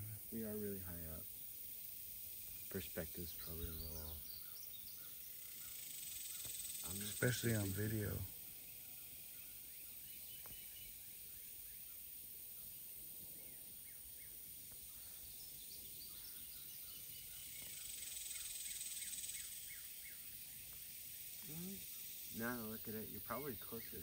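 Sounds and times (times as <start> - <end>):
steady high hiss: 0.0 - 24.0
faint high chirps: 2.2 - 24.0.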